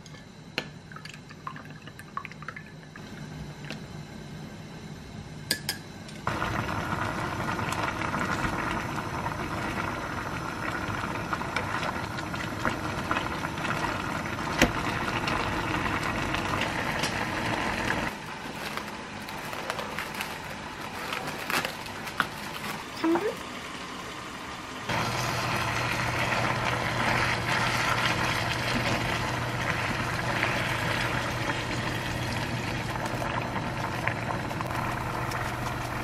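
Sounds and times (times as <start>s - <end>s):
stir-fry bubbling and sizzling: 6.2s - 36.0s
plastic wrap crinkling: 18.1s - 23.4s.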